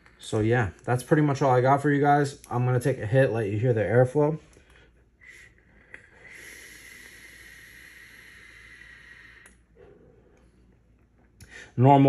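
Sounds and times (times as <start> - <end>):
hissing air draw: 5.2 - 10.6.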